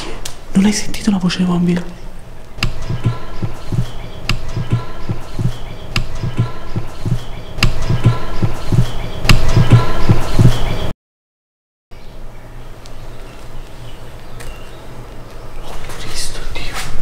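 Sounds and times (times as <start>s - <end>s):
heartbeat thuds: 2.6s - 10.7s.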